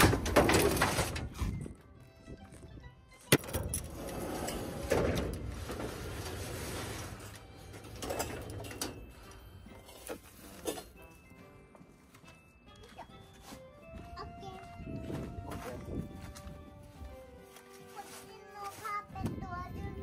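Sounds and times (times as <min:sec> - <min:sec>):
sliding door rattling along track: 0:00.0 - 0:01.3, 0:03.5 - 0:09.2.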